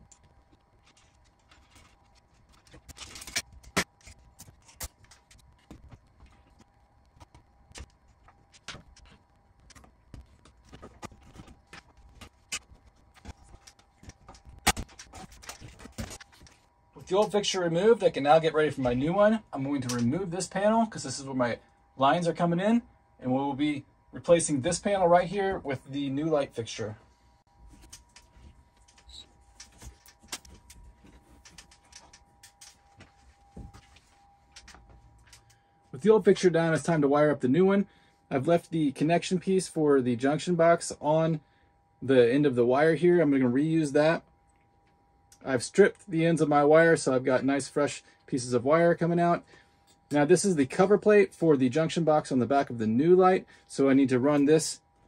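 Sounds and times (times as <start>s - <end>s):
faint steady hum: 0.0s - 55.0s
faint steady tone: 0.0s - 55.0s.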